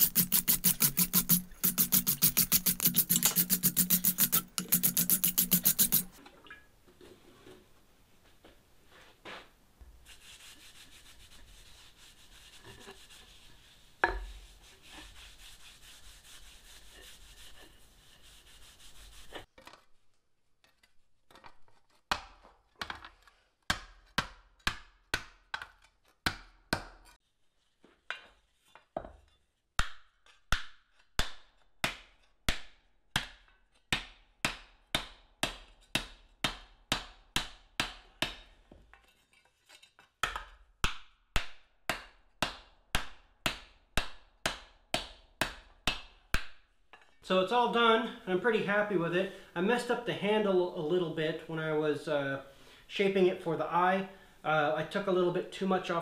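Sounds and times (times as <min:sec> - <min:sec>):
cloth rubbing on can: 0:00.0 - 0:06.2, 0:10.0 - 0:19.5.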